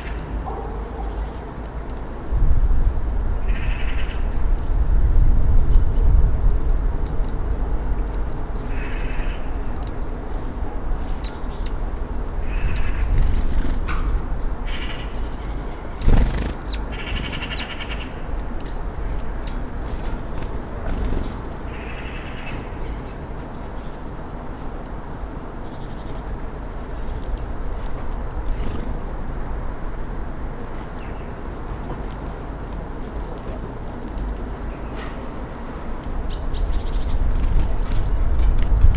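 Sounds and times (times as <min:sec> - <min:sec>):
steady low rumble: 0:00.0 - 0:23.1
small birds chirping: 0:07.8 - 0:24.4, 0:30.8 - 0:38.6
rattling bird calls: 0:12.4 - 0:18.2.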